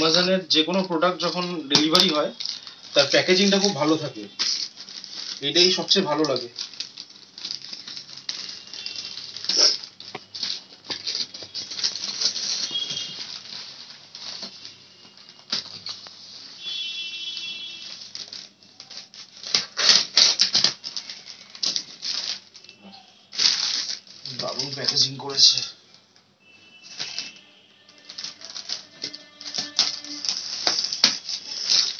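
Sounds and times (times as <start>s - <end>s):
plastic bag crinkling: 0.0s - 31.9s
plastic tearing rustles: 0.0s - 31.9s
scissors cutting plastic: 17.8s - 22.8s, 26.9s - 31.9s.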